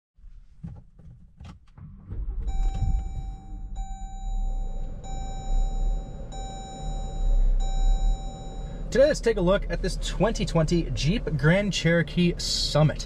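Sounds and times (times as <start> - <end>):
low rumble: 1.8 - 11.4
car warning chime: 2.4 - 9.6.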